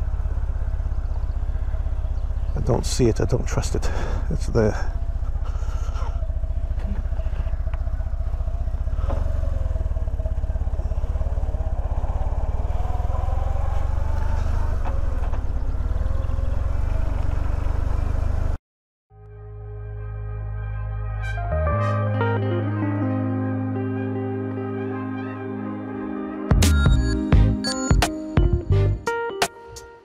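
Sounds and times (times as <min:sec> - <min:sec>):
motorcycle engine rumbling: 0:00.0 - 0:18.6.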